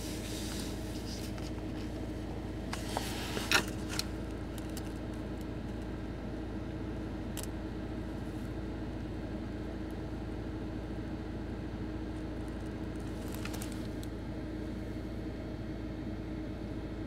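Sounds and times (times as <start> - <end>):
car interior hum: 0.0 - 10.2.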